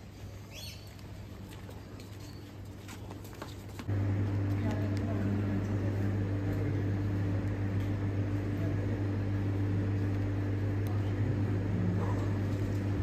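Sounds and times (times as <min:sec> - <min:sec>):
low hum: 0:03.9 - 0:13.0.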